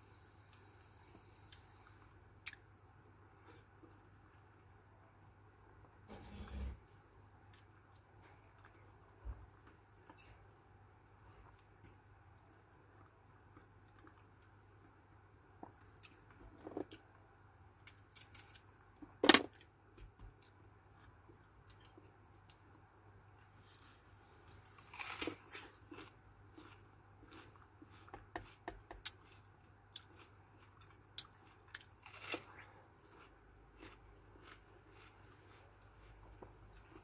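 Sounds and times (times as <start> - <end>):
crisp bite into apple: 31.7 - 32.8.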